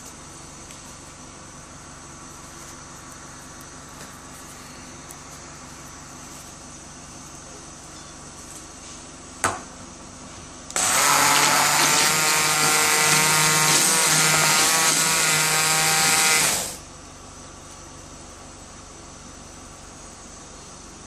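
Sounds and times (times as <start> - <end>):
hand blender motor whining: 10.7 - 16.8.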